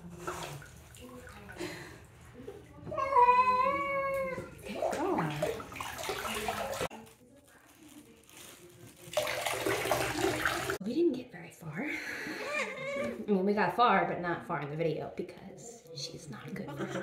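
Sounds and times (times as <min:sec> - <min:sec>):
water splashing in tub: 0:00.0 - 0:02.2, 0:03.9 - 0:07.0, 0:09.0 - 0:10.8
water sloshing in tub: 0:00.0 - 0:07.0, 0:09.0 - 0:10.8
water pouring over cat: 0:04.1 - 0:07.0, 0:08.3 - 0:10.8.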